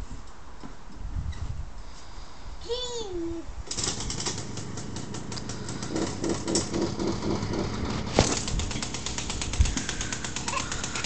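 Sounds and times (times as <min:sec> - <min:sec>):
small engine puttering: 0:03.7 - 0:11.0.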